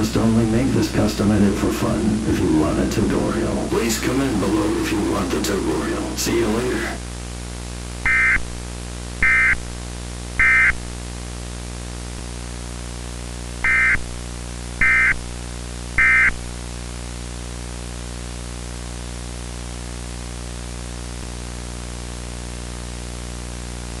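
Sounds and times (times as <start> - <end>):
electrical hum and static: 0.0 - 24.0.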